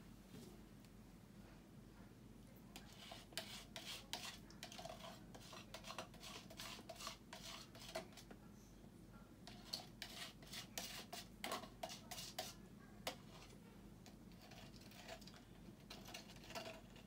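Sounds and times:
paint scraped from plastic cup: 2.8s - 8.3s, 9.5s - 13.6s, 14.3s - 17.0s.

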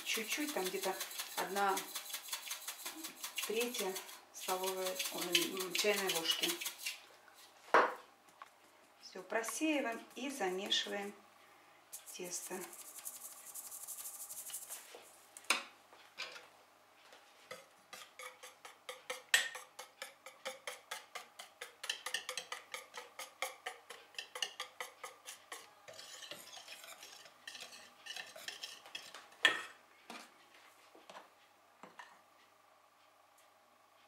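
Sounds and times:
whisk clinking against metal bowl: 0.0s - 7.0s, 17.5s - 29.2s.

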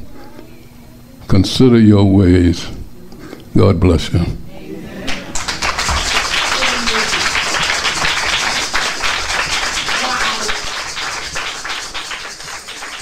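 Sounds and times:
crowd applauding: 5.1s - 13.0s.

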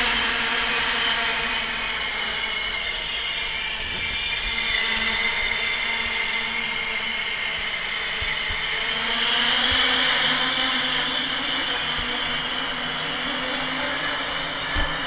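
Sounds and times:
high steady whine: 0.0s - 15.0s.

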